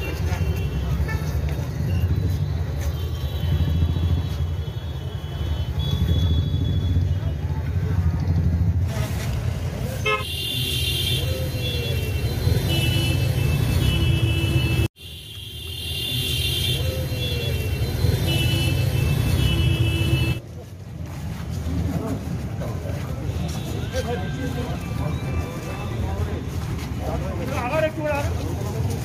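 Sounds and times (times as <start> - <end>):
traffic engines rumbling: 0.0 - 29.0
vehicle horns honking: 2.9 - 7.2, 10.0 - 20.4.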